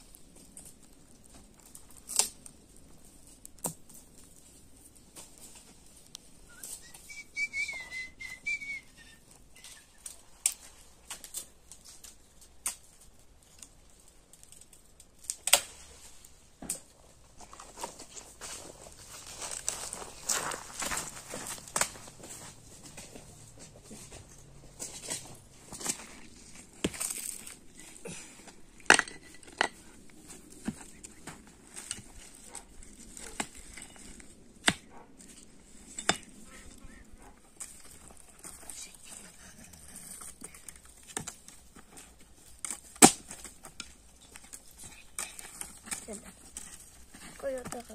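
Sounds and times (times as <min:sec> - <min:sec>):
dry twigs snapping: 0:00.0 - 0:07.0, 0:09.6 - 0:16.9, 0:19.1 - 0:22.3, 0:24.3 - 0:36.4, 0:39.6 - 0:47.0
rocks clacking and knocking: 0:00.0 - 0:07.0, 0:16.5 - 0:36.6, 0:37.2 - 0:47.9
short wavering whistle: 0:06.5 - 0:09.2.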